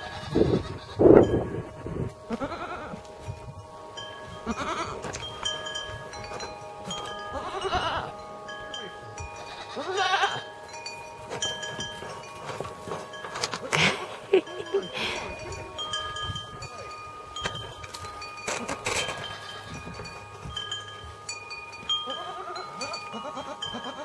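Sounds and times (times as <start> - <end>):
goat kids bleating: 0.0 - 1.6, 2.2 - 3.2, 4.4 - 5.5, 6.3 - 10.6, 18.5 - 20.2, 22.0 - 24.0
steady ringing tones: 0.0 - 24.0.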